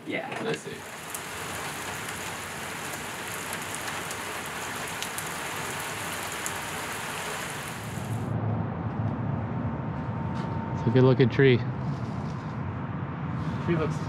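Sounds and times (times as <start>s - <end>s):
rain on pavement and cars: 0.4s - 8.3s.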